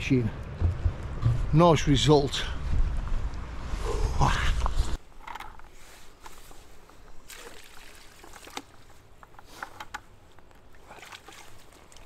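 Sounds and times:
small splashes: 7.2 - 9.0, 10.6 - 12.0
faint trickling water: 10.4 - 12.0.

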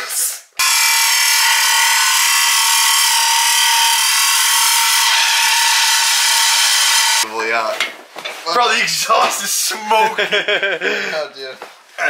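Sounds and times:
battery saw cutting metal: 0.6 - 7.2.

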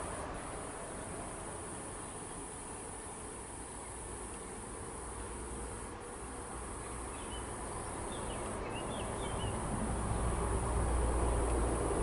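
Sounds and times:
insect buzz: 0.0 - 12.0
small bird chirping: 6.8 - 9.6.

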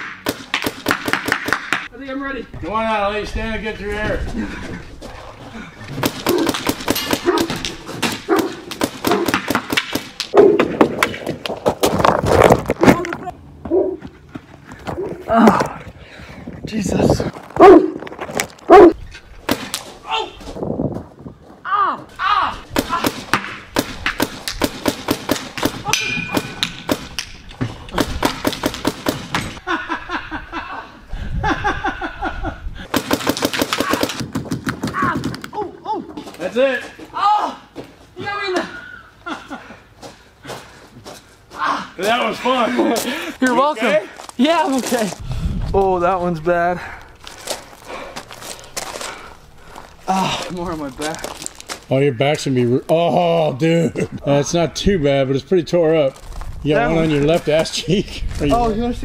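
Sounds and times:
paintball gun firing: 0.0 - 1.9, 6.0 - 10.6, 22.8 - 29.6, 32.9 - 35.5
person crying out rhythmically: 34.8 - 36.2
man crying out in pain: 50.0 - 50.5.

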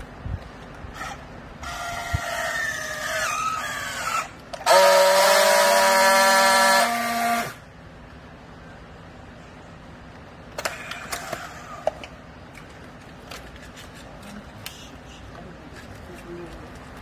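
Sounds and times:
strapping tool motor whining: 0.9 - 7.6
strapping tool buzzing: 3.7 - 7.6.

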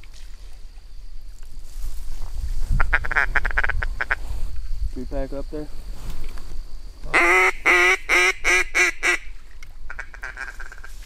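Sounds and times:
duck quacking: 7.1 - 9.3.

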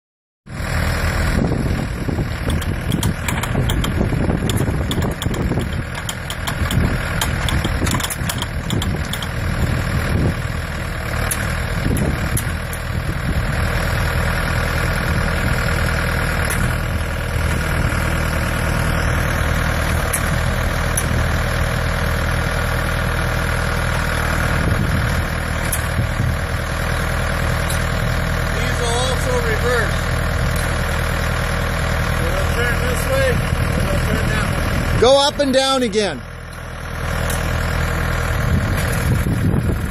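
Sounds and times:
tractor engine idling: 0.5 - 39.9
light clicks and knocks: 2.5 - 9.4.

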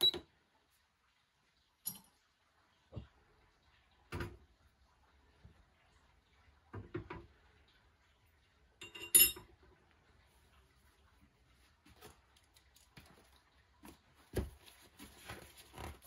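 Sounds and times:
bright metallic clink: 8.8 - 9.4.

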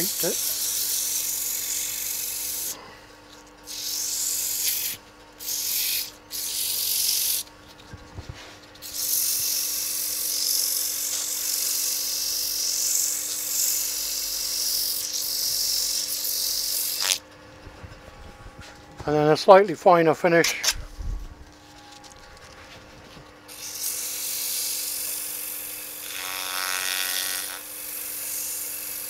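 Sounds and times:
sandpaper hissing on spinning wood: 0.0 - 2.8, 3.7 - 17.2, 23.5 - 29.0.

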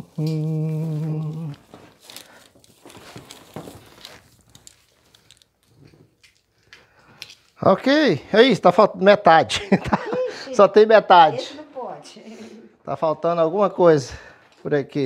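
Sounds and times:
person humming: 0.0 - 1.8
string lights crinkling: 0.0 - 7.9.

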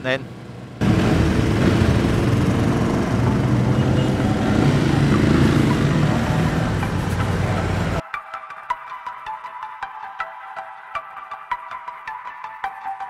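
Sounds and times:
motorcycle engine running: 0.8 - 8.0.

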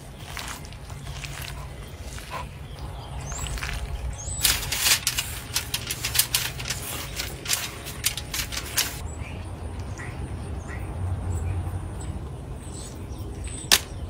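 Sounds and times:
soft rustling of hand mixing meat: 0.0 - 4.8
faint bird chirps: 9.0 - 14.0.

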